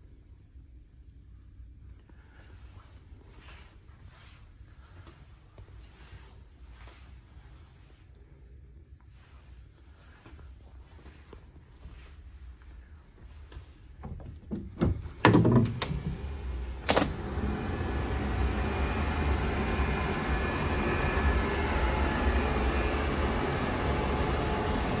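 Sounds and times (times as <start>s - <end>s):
outdoor wind noise: 0.0s - 25.0s
sliding door clicks and knocks: 14.0s - 17.2s.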